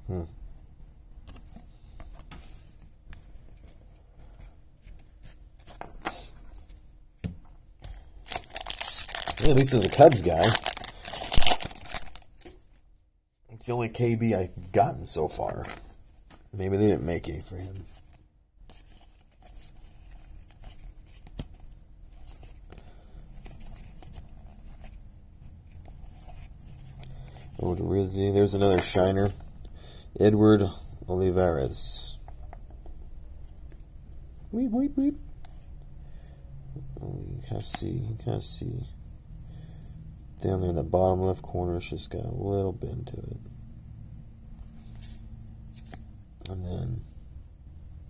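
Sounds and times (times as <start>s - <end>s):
cards rustling and scraping: 1.3s - 6.8s, 7.8s - 12.8s, 17.7s - 27.7s, 44.6s - 46.0s
cards clicking and rustling: 7.8s - 12.6s.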